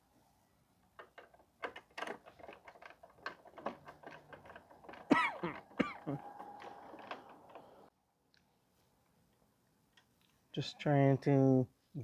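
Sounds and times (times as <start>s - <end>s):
hand tools clicking and knocking: 0.8s - 7.9s.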